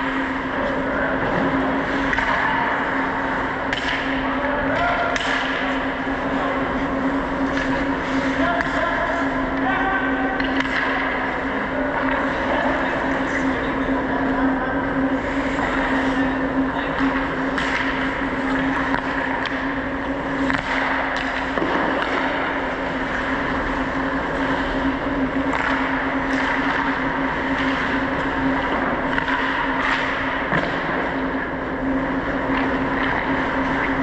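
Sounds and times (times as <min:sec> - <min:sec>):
steady low hum: 0:00.0 - 0:34.0
hockey sticks and puck clicking: 0:01.4 - 0:02.9, 0:03.6 - 0:06.0, 0:07.4 - 0:08.8, 0:10.4 - 0:11.3, 0:16.9 - 0:31.4, 0:32.3 - 0:34.0.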